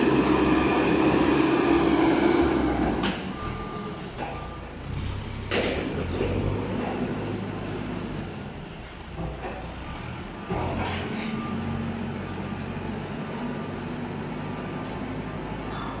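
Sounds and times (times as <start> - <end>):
diesel engine under load: 0.0 - 16.0
reversing beeper: 0.2 - 5.1.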